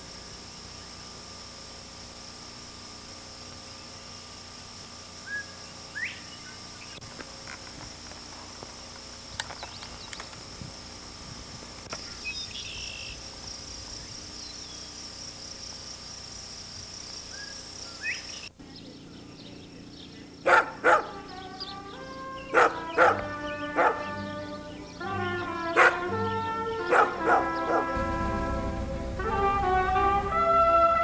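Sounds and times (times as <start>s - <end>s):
high-pitched insect drone: 0.0s - 31.0s
dog barking loudly: 20.4s - 21.2s, 22.5s - 24.3s, 25.7s - 26.2s, 26.8s - 28.0s.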